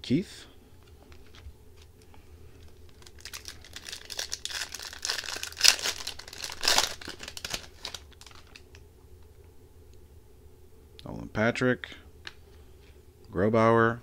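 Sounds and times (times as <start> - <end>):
foil card pack crinkling: 2.6 - 8.8.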